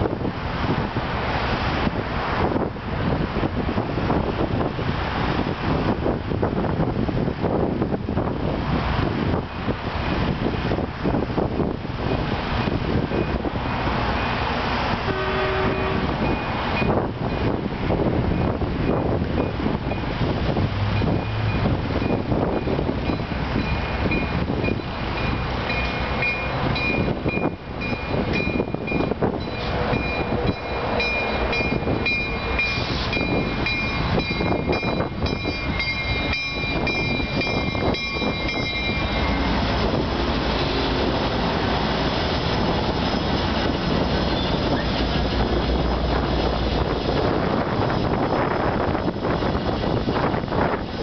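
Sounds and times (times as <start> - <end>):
diesel locomotive rumble: 0.0 - 51.0
train wheels squealing: 44.1 - 45.2.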